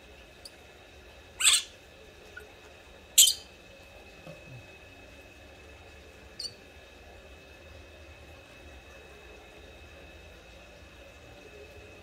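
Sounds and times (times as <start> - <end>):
baby monkey squealing: 1.4 - 1.7, 3.2 - 3.5.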